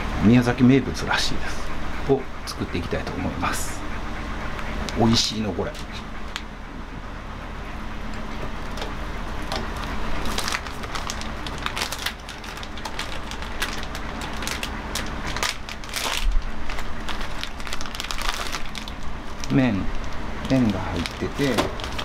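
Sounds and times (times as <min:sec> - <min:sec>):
plastic packet crinkling: 0:09.5 - 0:22.0.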